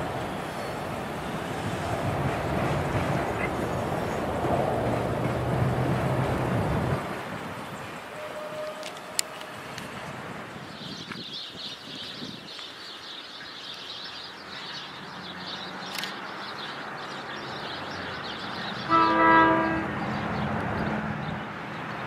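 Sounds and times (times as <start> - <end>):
low hum of train: 0.0 - 11.3, 17.2 - 22.0
train air horn blast: 8.1 - 9.6, 18.9 - 20.0.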